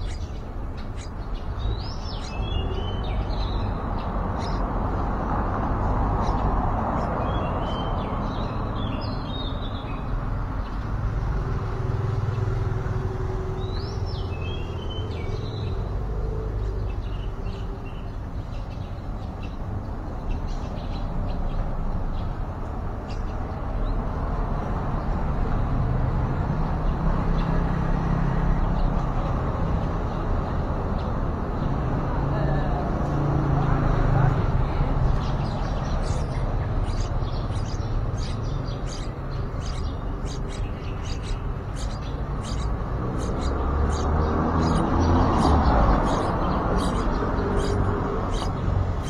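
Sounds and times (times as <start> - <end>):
high bird chirps: 0.0 - 4.7, 6.2 - 10.8, 35.1 - 49.0.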